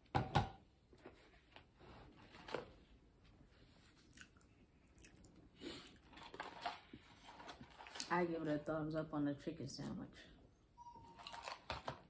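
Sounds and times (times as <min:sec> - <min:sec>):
chewing and eating: 0:03.9 - 0:08.1.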